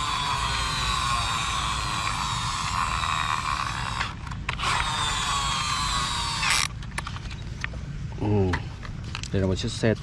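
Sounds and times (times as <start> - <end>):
toy truck gears whirring: 0.0 - 7.4.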